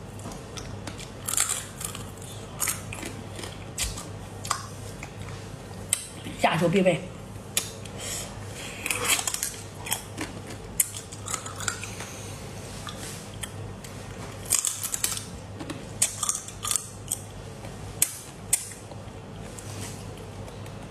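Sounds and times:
faint low hum: 0.0 - 20.9
crab shell crunching between teeth: 16.0 - 17.2.

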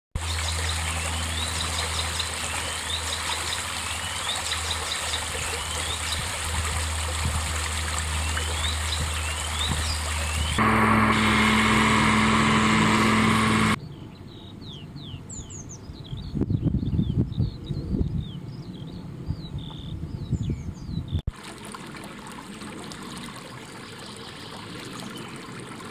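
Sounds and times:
stream rippling over stones: 0.2 - 11.4, 21.3 - 25.9
low steady drone: 7.6 - 13.8.

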